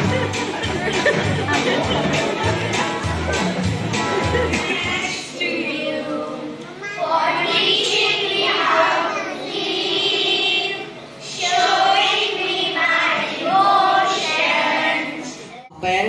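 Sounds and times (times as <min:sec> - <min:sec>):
children singing in unison: 0:04.1 - 0:15.5.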